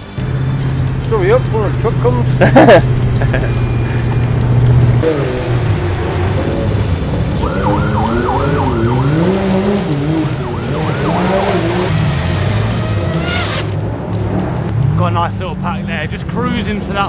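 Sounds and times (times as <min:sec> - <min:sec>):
drone motors whining: 0:02.9 - 0:13.9.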